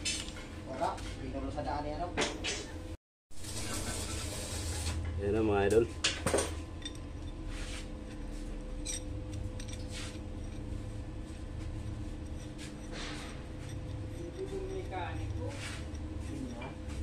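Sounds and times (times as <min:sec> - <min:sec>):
steady low hum: 0:00.0 - 0:17.0
metal chain clinking: 0:08.7 - 0:10.7.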